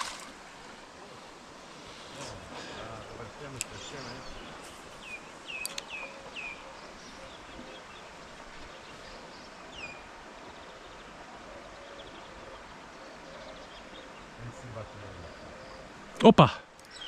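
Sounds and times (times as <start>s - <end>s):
outdoor hiss: 0.0s - 11.4s
bird chirping: 2.6s - 16.2s.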